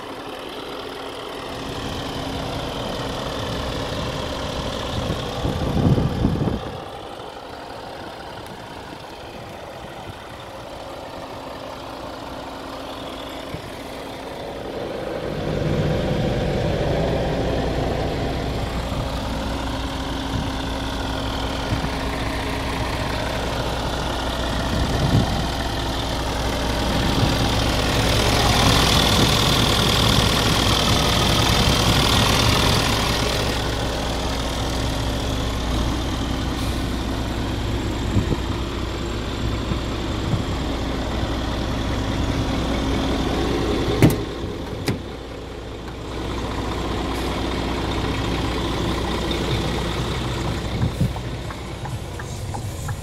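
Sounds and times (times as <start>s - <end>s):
truck diesel engine idling: 0.0s - 53.0s
hiss: 52.2s - 53.0s.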